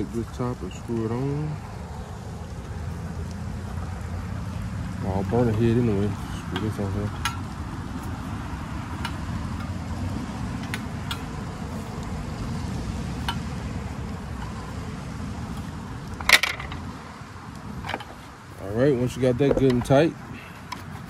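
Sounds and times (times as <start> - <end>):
steady low rumble: 0.0 - 20.1
metal fitting clicking: 16.1 - 16.9.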